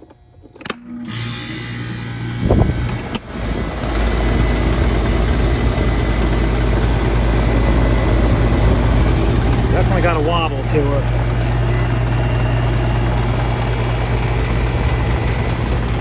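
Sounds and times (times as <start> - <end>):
heat pump click: 0.0 - 1.1
condenser fan spinning: 0.0 - 16.0
heat pump humming: 0.0 - 16.0.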